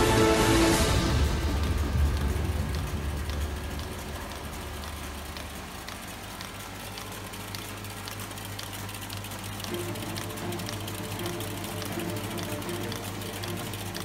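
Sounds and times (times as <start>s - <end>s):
machine humming: 0.0s - 14.0s
light machine clicks: 0.7s - 14.0s.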